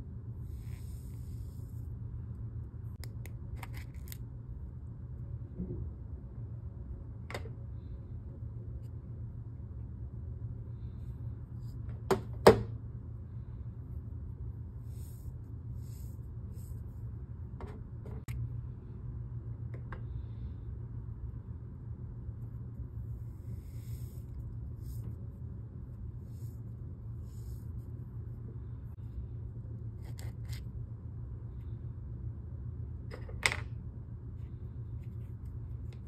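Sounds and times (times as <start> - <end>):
steady low hum: 0.0 - 36.0.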